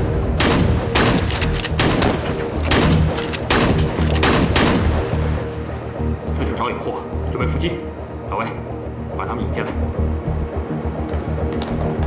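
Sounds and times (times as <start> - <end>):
rapid rifle gunfire: 0.4 - 4.9.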